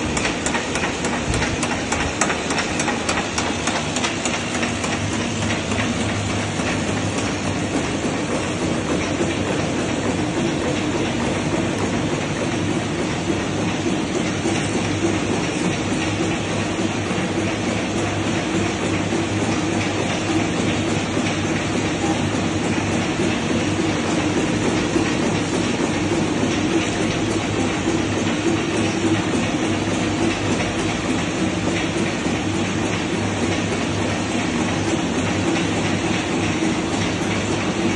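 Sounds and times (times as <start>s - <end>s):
packaging machine running: 0.0s - 37.9s.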